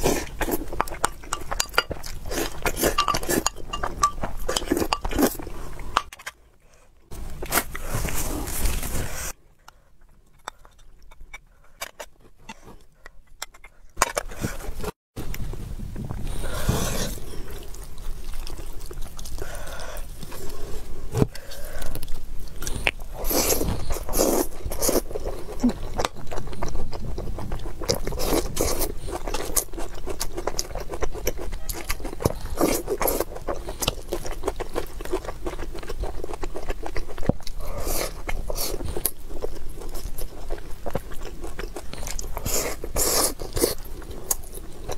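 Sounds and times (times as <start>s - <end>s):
chewing with wet mouth clicks: 0.3s - 6.1s, 17.4s - 20.6s, 21.8s - 44.9s
spoon scraping bowl: 0.8s - 6.1s.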